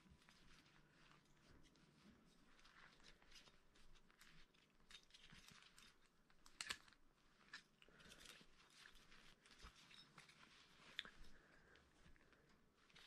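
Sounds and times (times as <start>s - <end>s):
cloth rustling: 0.0s - 13.0s.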